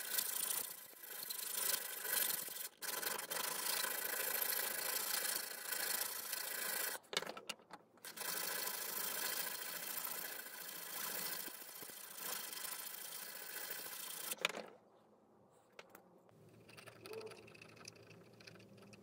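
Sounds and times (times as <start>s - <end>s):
file scraping steel blade: 0.0s - 7.0s, 8.1s - 14.4s.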